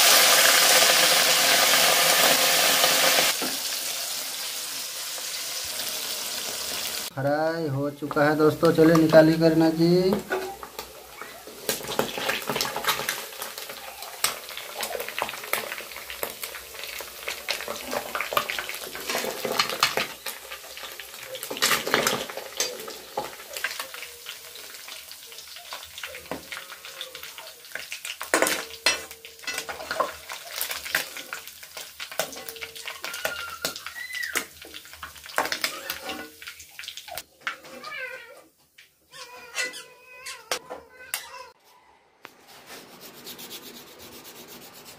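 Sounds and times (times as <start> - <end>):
oil sizzling: 0.0 - 37.8
metal spatula scraping and clinking: 35.4 - 36.4.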